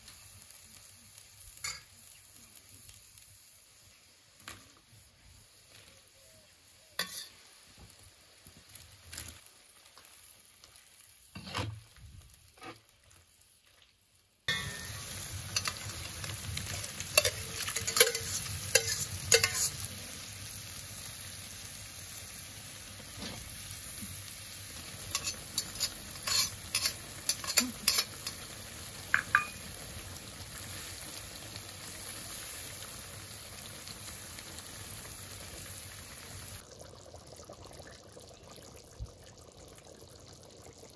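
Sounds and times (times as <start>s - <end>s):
sauce sizzling and bubbling: 0.0s - 40.9s
metal skimmer scraping pot: 14.5s - 19.8s, 25.1s - 28.4s.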